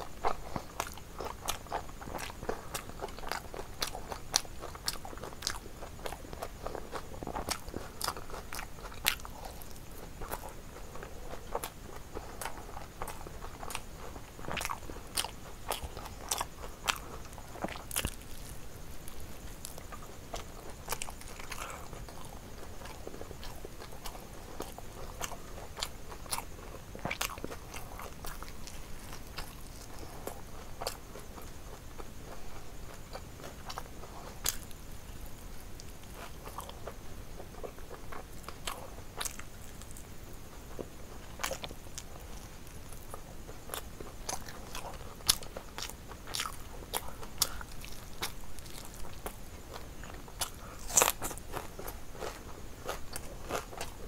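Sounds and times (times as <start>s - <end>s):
person chewing: 0.1s - 34.8s, 35.8s - 40.0s, 40.7s - 54.0s
crunching bites of fried food: 0.1s - 40.1s, 40.7s - 54.0s.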